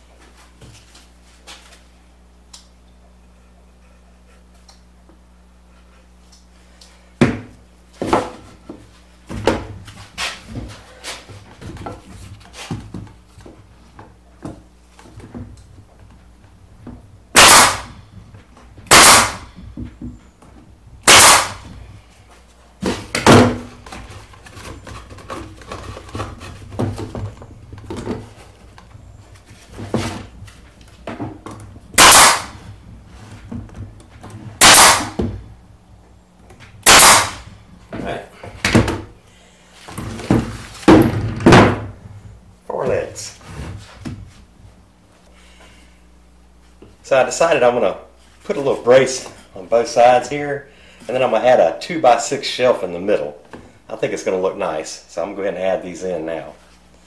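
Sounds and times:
nail gun shots: 0:17.3 - 0:18.0, 0:18.9 - 0:19.5, 0:21.0 - 0:21.7, 0:32.0 - 0:32.7, 0:34.6 - 0:35.2, 0:36.8 - 0:37.5
boards knocking and clattering: 0:22.8 - 0:31.8, 0:39.9 - 0:42.0.

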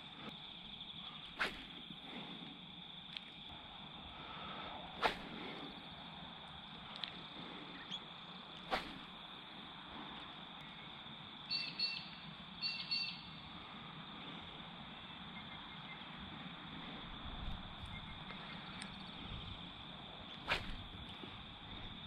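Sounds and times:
bird calls: 0:11.5 - 0:13.4, 0:17.8 - 0:19.2.

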